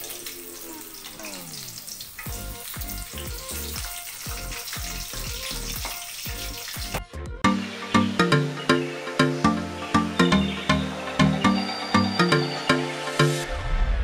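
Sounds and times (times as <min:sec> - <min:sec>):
hot oil sizzling: 0:00.0 - 0:07.1
background music with beat: 0:02.3 - 0:14.0.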